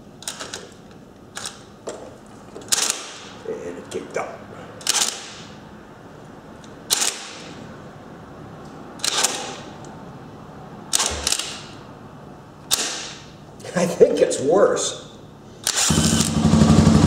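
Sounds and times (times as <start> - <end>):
cordless drill cranking engine: 15.6 - 16.5.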